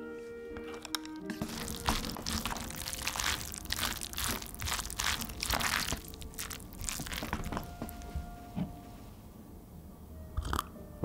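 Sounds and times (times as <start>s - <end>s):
chopsticks stirring noodles in paper cup: 1.3s - 8.5s.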